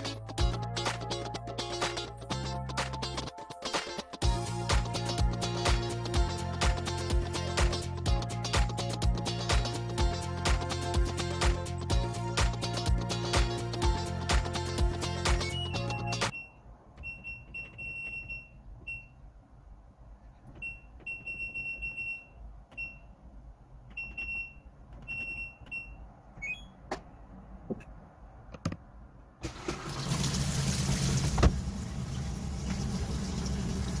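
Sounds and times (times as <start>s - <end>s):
washing machine button beeps: 15.4s - 19.2s, 20.6s - 23.1s, 23.9s - 26.8s
water rushing into tub: 29.4s - 34.0s.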